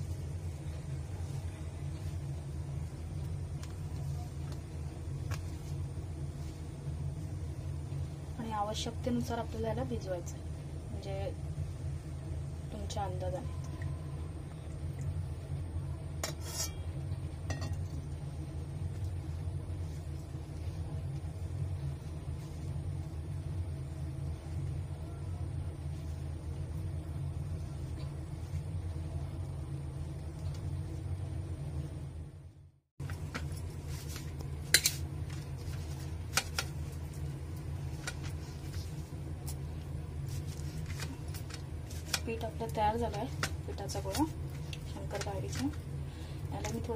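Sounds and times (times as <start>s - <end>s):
hand kneading dough: 0.0s - 10.0s, 33.0s - 46.9s
steady low hum: 0.0s - 46.9s.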